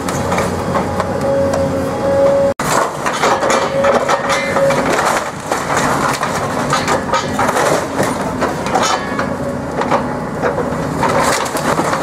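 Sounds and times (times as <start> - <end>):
excavator diesel engine: 0.0 - 12.0
timber splintering and crunching: 2.6 - 9.2, 9.8 - 12.0
wood cracking: 2.6 - 12.0.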